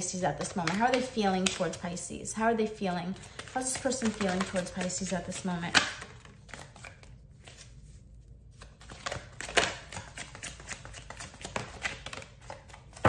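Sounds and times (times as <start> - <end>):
cards being shuffled: 3.2 - 13.0.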